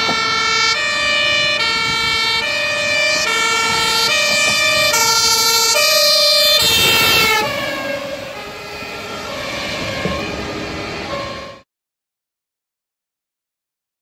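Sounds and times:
truck road noise: 0:00.0 - 0:11.7
two-tone fire truck siren: 0:00.0 - 0:11.7.

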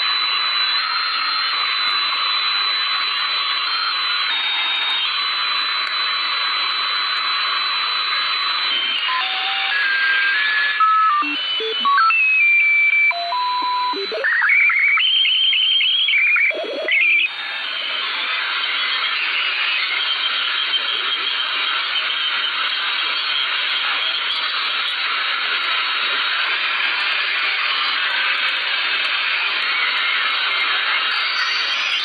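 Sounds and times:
fast repeating beeps: 0:08.5 - 0:17.3
electronic tones jumping pitch: 0:09.2 - 0:17.3
radio static hiss: 0:13.4 - 0:32.0.

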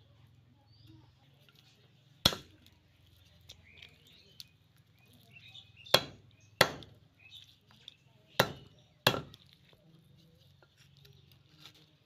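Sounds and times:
blade chopping meat on wood: 0:02.2 - 0:02.5, 0:05.8 - 0:07.0, 0:08.3 - 0:09.5.

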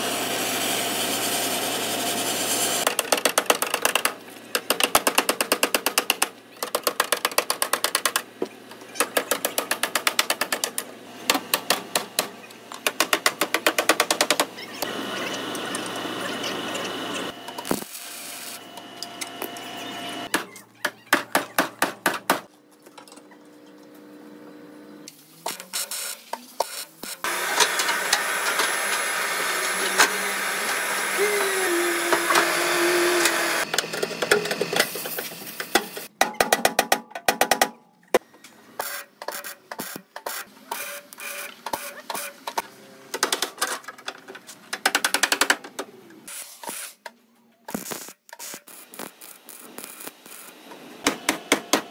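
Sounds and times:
welding clicks and crackling: 0:17.6 - 0:19.3, 0:47.7 - 0:50.6.

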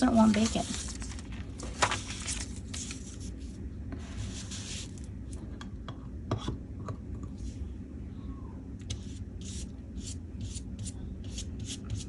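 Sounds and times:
paper rustling: 0:00.0 - 0:03.5.

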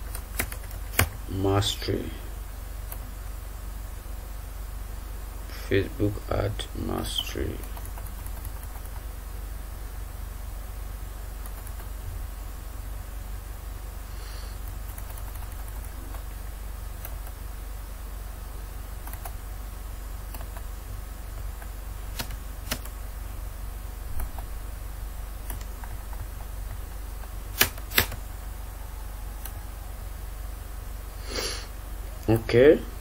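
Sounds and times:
low electrical hum: 0:00.0 - 0:33.0
computer mouse clicks: 0:20.4 - 0:20.6.

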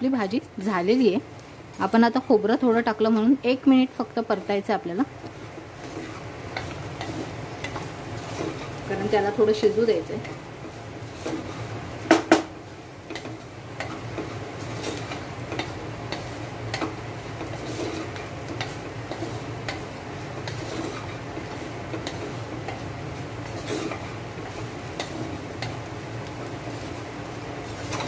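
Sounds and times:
spatula scraping and tapping pot: 0:04.1 - 0:28.0.

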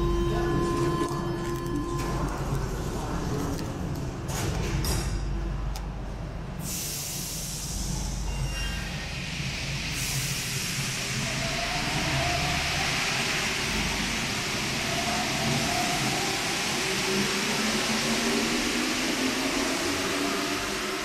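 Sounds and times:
train hiss and whine pulling out: 0:06.6 - 0:21.0.

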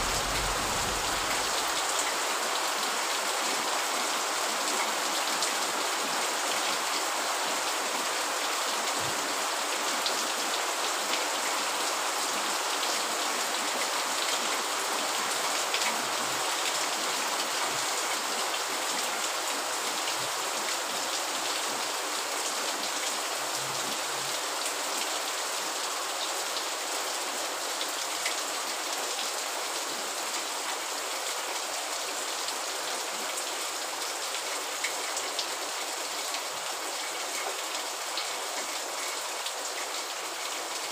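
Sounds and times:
steady rain: 0:00.0 - 0:40.9.

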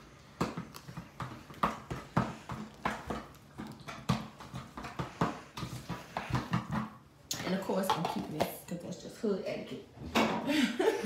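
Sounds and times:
utensil knocking on bowl: 0:00.4 - 0:08.7.

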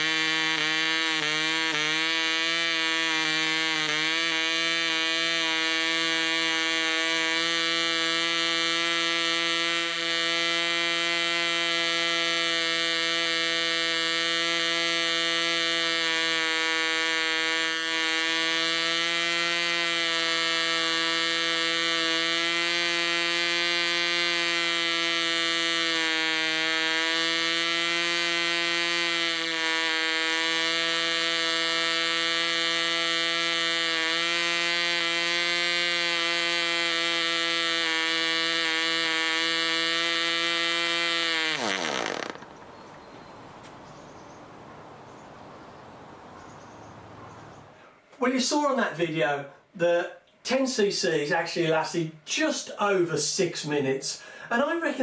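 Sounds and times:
model engine high buzz: 0:00.0 - 0:42.6.

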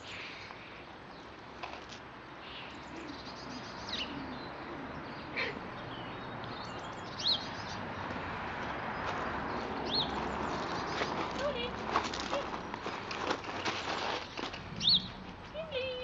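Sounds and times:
outdoor background noise: 0:00.0 - 0:16.0
high bird chirps: 0:14.8 - 0:15.2.

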